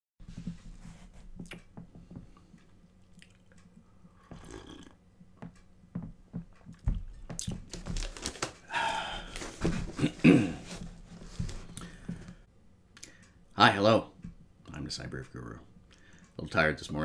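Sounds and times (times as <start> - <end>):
person sipping and swallowing: 3.0 - 5.0.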